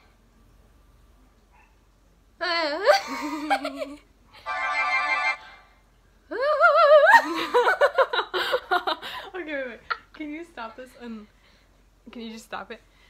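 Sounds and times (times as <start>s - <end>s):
wavering laugh-like sound: 2.8s - 4.0s, 6.3s - 9.0s.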